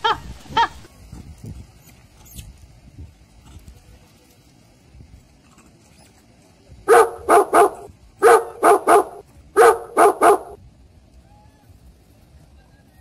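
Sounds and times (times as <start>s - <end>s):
dog barking: 6.9s - 10.6s.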